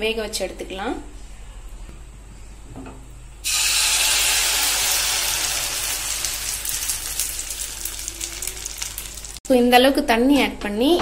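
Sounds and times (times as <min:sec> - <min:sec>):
paste sizzling in hot ghee: 0:03.4 - 0:09.4.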